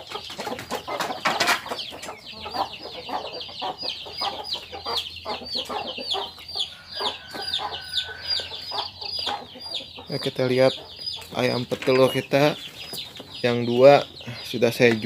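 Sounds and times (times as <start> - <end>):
chicks peeping: 0.0 - 15.0
hens clucking: 0.0 - 15.0
chicken squawk: 2.2 - 10.2.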